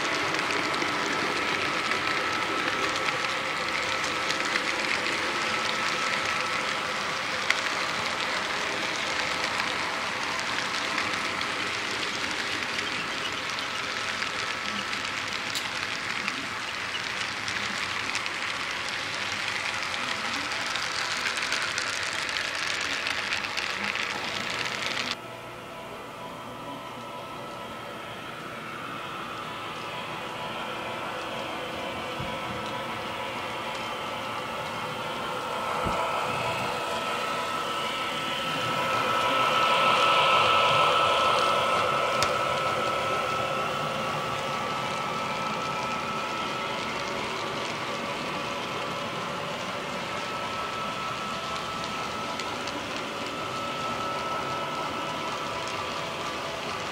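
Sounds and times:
model train wheels rattling on track: 0:00.0 - 0:25.2, 0:37.5 - 0:56.9.

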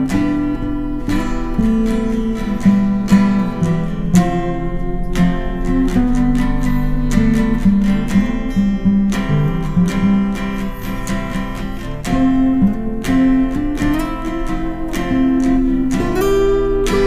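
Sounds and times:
acoustic guitar strumming chords: 0:00.0 - 0:17.0.

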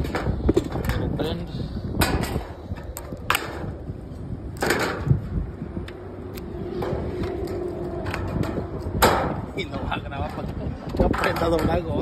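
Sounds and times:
sheet metal clicking and rattling: 0:02.0 - 0:03.8, 0:04.5 - 0:05.2.

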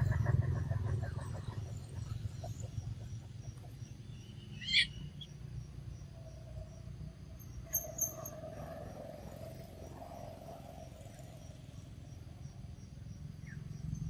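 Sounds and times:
low background rumble: 0:00.0 - 0:08.6
high-pitched animal squeaks: 0:04.6 - 0:04.9.

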